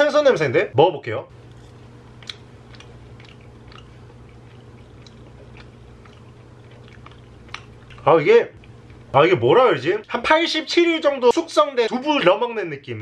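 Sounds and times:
low hum: 0.7s - 10.2s
man chewing: 1.4s - 9.2s.

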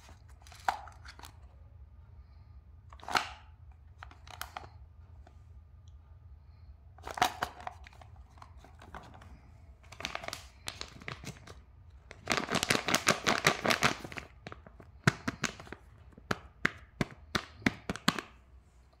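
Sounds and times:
plastic wrap crinkling: 7.0s - 17.0s.

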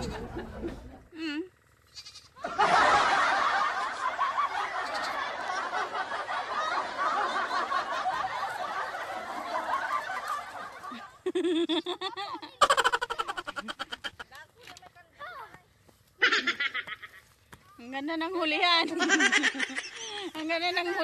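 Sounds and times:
crowd laughing and shouting: 2.4s - 14.2s.

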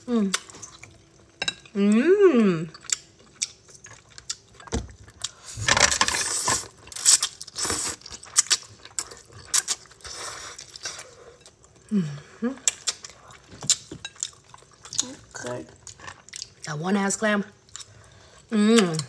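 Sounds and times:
chewing: 2.7s - 5.6s, 12.6s - 16.7s.

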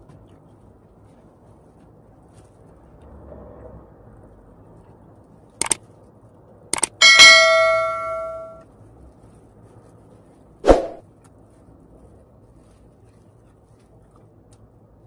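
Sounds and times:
tableware clicking: 6.8s - 8.6s
dish clinking and ringing: 6.9s - 8.6s.

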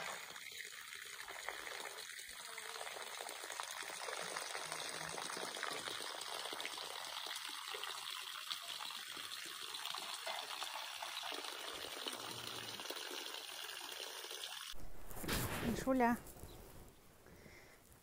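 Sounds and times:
hose water running onto ground: 0.0s - 14.8s.

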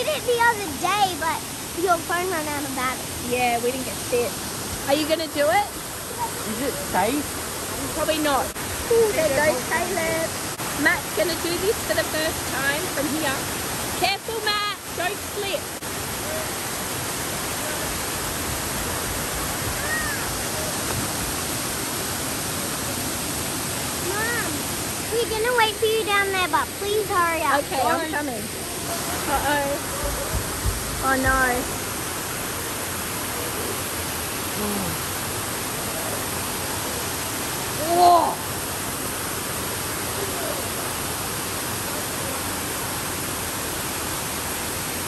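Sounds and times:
waterfall rushing into a pool: 0.0s - 45.0s
vocal exclamation: 34.6s - 35.0s.

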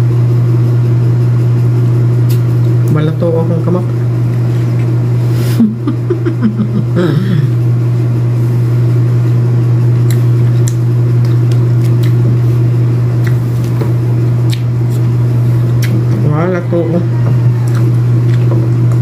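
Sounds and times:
low mechanical hum: 0.0s - 19.0s
fruit segments pulled apart: 10.0s - 12.3s.

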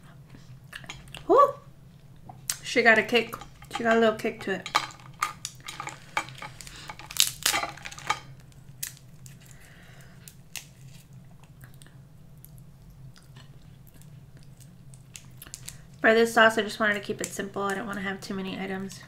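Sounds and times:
crab shells cracking: 3.3s - 11.6s, 14.0s - 16.0s.

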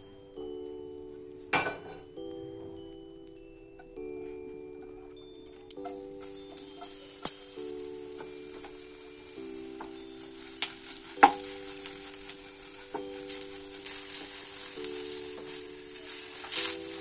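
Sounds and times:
okra sizzling in oil: 5.8s - 17.0s
wooden spatula scraping the pan: 6.2s - 17.0s.

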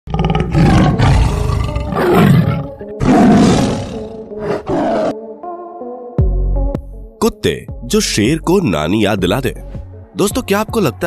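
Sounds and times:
big cat roaring and snarling: 0.1s - 5.2s.

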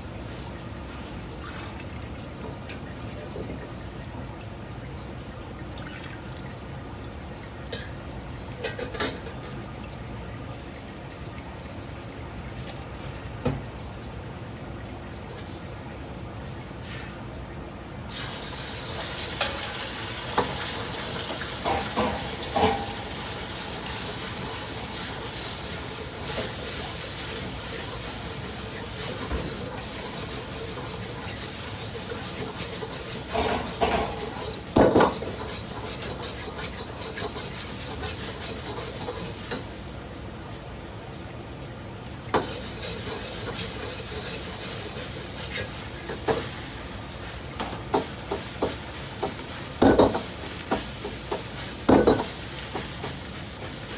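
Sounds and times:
rice sizzling in a wok: 18.0s - 53.9s.

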